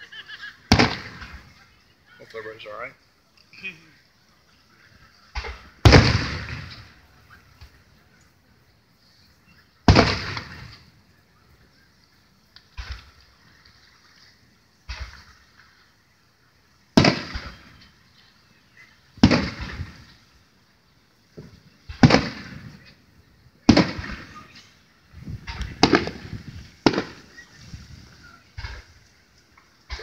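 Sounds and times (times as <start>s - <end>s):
firework shells bursting: 0.7s - 1.6s, 5.3s - 7.8s, 9.8s - 11.0s, 14.8s - 15.8s, 16.9s - 18.0s, 19.2s - 20.3s, 21.2s - 30.0s.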